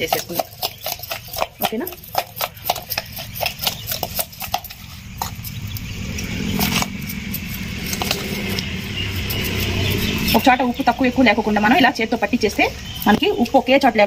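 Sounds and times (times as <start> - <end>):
hands squishing raw seafood: 0.0 - 10.3
low steady rumble: 0.0 - 14.0.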